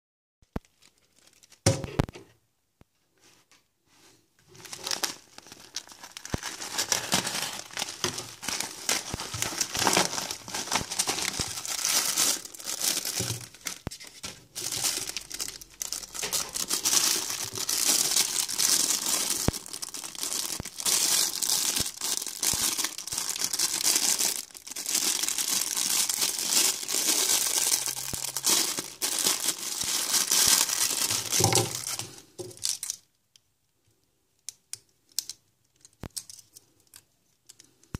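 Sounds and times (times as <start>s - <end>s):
plastic packaging crinkling and tearing: 0.6s - 1.7s, 4.5s - 33.1s.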